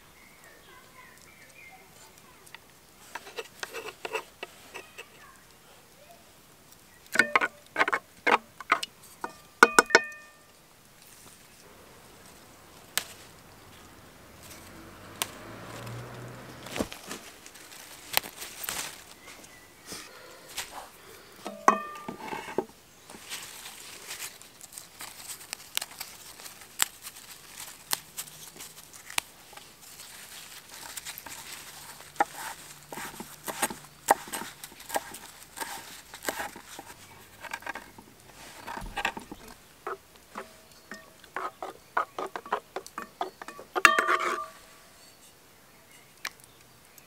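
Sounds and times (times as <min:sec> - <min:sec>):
metal ladle clinking pot: 0:07.2 - 0:08.0, 0:08.8 - 0:10.4, 0:21.4 - 0:22.6, 0:40.4 - 0:41.4, 0:42.2 - 0:45.2.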